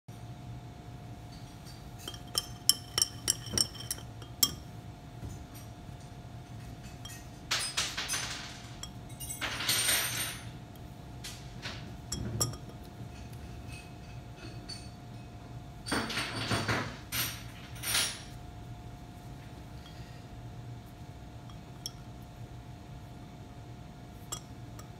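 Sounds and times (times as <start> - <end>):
glass beaker clinking: 2.0 - 4.7, 6.8 - 8.2, 12.1 - 13.3, 21.5 - 22.2, 24.2 - 24.9.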